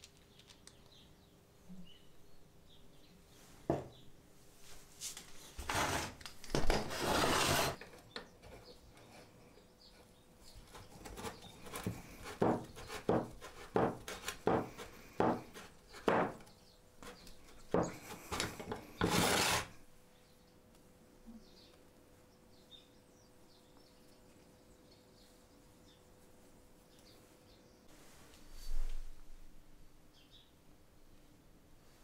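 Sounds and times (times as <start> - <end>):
metal scraping on wood: 5.6 - 9.5, 10.6 - 19.8.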